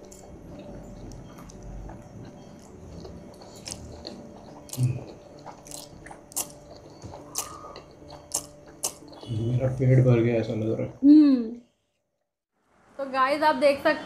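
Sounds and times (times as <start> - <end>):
noodles slurped and chewed: 0.1 - 10.0.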